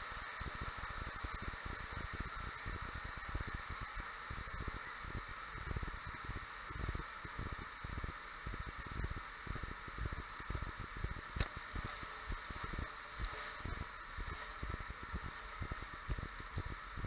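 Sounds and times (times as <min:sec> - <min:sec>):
sharp click: 0:11.4 - 0:11.6.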